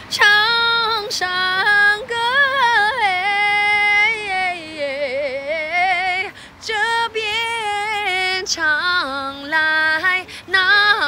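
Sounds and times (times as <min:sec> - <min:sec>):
woman singing: 0:00.0 - 0:11.0.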